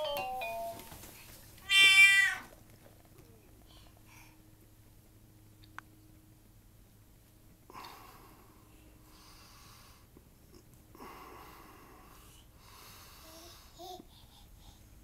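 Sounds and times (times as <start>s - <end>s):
baby breathy huffs: 12.5s - 15.0s.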